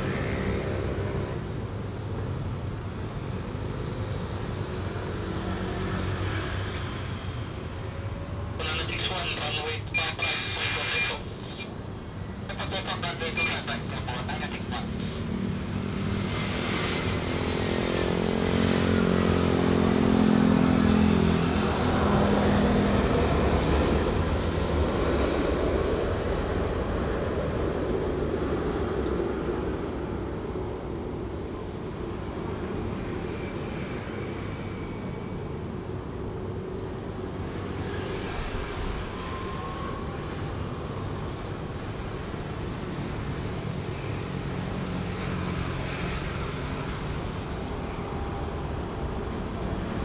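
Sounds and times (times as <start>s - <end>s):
jet airliner passing: 8.5s - 35.5s, 37.2s - 48.8s.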